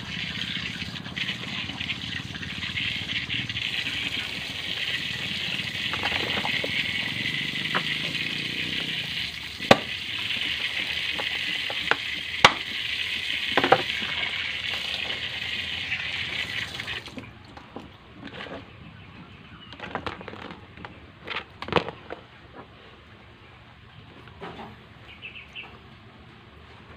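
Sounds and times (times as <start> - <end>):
tap running into sink: 9.2 - 12.8, 13.5 - 15.2.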